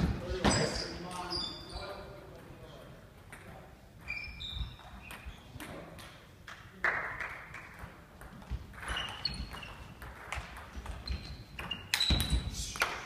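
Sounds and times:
shoes squeaking on floor: 0.0s - 2.2s, 4.0s - 5.8s, 8.4s - 12.9s.

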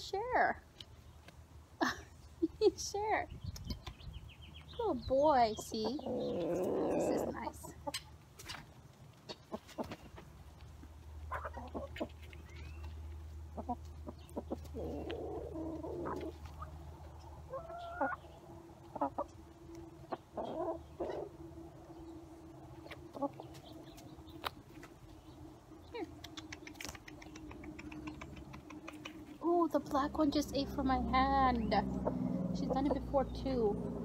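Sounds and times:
beaks pecking on dirt: 3.0s - 30.8s
chickens clucking softly: 5.5s - 10.3s, 11.3s - 12.7s, 13.5s - 21.4s, 25.9s - 29.4s.

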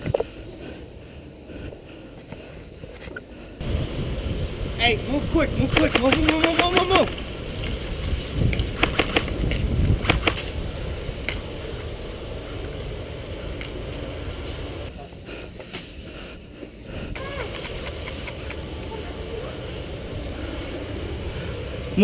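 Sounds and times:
outdoor rustle: 0.0s - 22.0s
wind rumble on microphone: 3.6s - 14.9s
sharp clicks: 5.7s - 7.2s, 8.5s - 10.5s.

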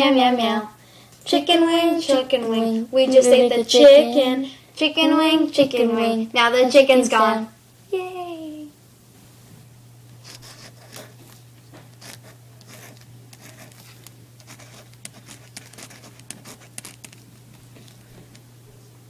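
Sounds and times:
steady low hum: 0.0s - 19.0s
marker scratching on paper: 10.2s - 11.2s, 12.0s - 17.2s.

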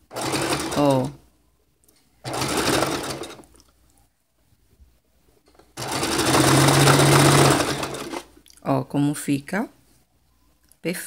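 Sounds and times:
sewing machine stitching: 0.0s - 1.2s, 2.2s - 3.4s, 5.8s - 8.3s.

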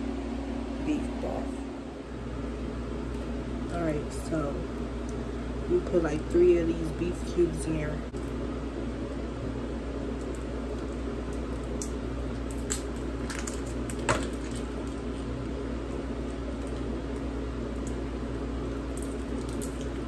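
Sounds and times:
steady low hum: 0.0s - 20.0s
foil wrappers crinkling: 10.2s - 20.0s.

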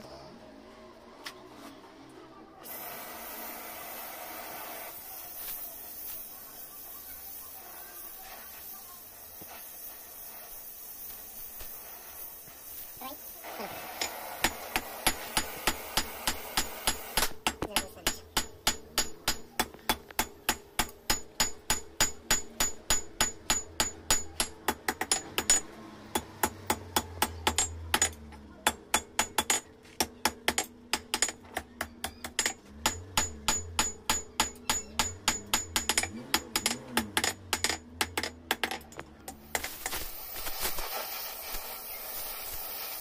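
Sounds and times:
hammer striking metal on anvil: 14.0s - 39.7s.

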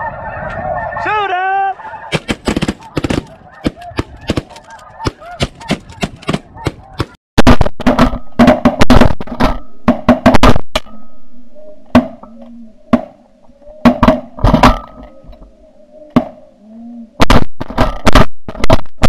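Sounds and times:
geese honking: 0.0s - 7.2s, 11.3s - 17.2s.

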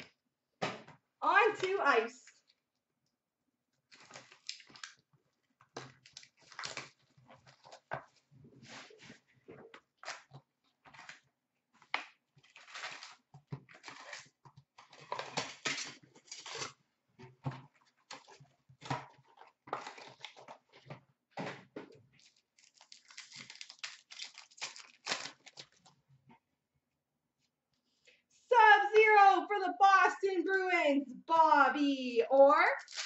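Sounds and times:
wrapper tearing: 3.9s - 5.0s, 5.8s - 7.8s, 14.9s - 16.8s, 22.2s - 25.9s, 32.8s - 33.0s
cardboard and foil rustling: 12.4s - 16.8s, 22.2s - 25.9s.

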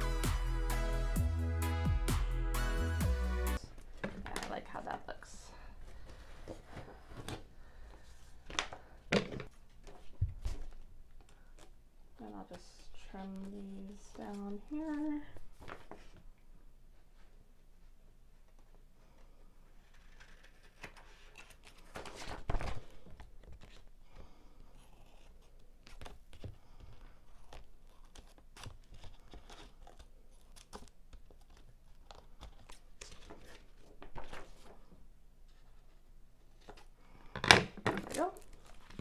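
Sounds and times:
paper rustling: 5.9s - 11.8s, 19.8s - 23.9s, 24.9s - 36.9s, 38.1s - 39.0s.

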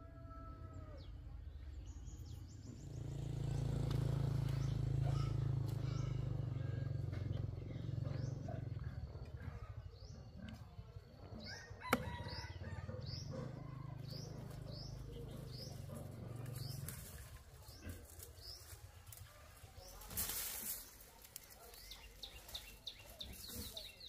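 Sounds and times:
bird chirping: 1.0s - 20.1s, 20.8s - 24.0s
mesh netting rustling: 19.8s - 22.8s.

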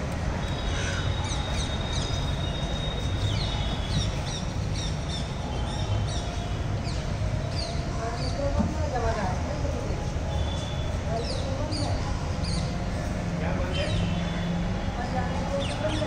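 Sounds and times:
small birds chirping: 0.4s - 8.5s.

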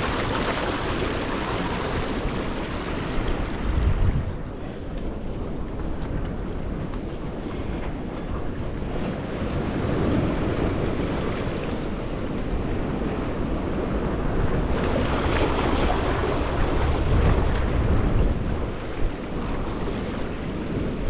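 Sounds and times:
sea waves washing: 0.0s - 5.0s
wind buffeting microphone: 0.0s - 21.0s.

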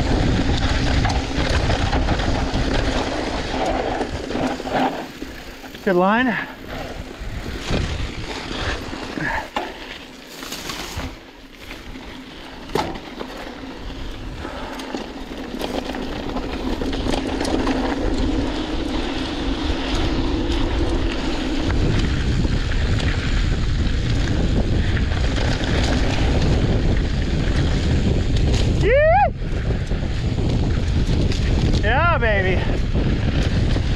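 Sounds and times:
bike tyres rolling on dirt: 0.0s - 33.9s
wind rushing over microphone: 0.0s - 33.9s
bike knocks: 12.6s - 13.5s.

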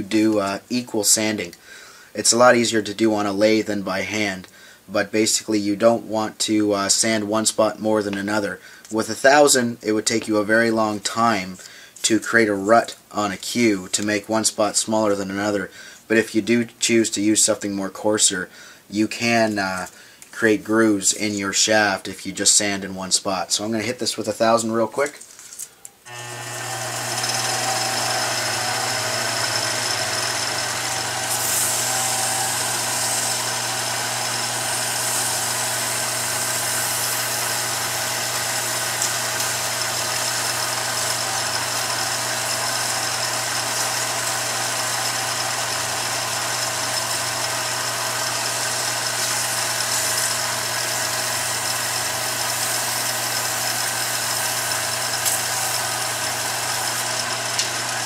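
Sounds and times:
lathe motor hum: 26.1s - 58.0s
sandpaper hissing on spinning shaft: 26.1s - 58.0s.

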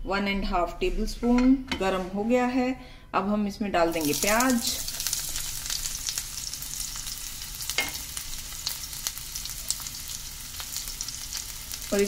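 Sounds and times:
onions sizzling in oil: 3.9s - 12.0s.

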